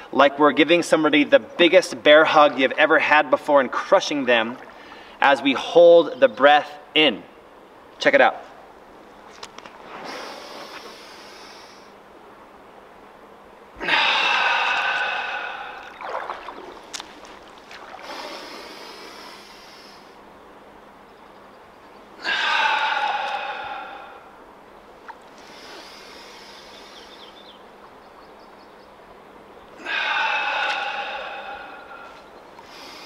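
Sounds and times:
man breathing hard: 13.8 - 16.0, 18.0 - 20.2, 22.2 - 24.4, 25.4 - 27.2, 29.8 - 33.0.

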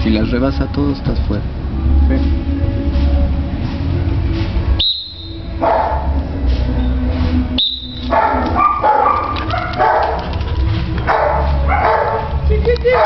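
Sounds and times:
dog barking and yelping: 5.6 - 6.2, 8.0 - 13.0.

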